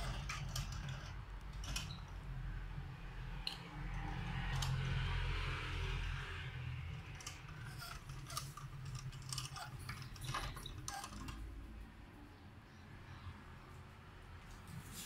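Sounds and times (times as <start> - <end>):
plastic gears clicking: 7.0 - 11.5.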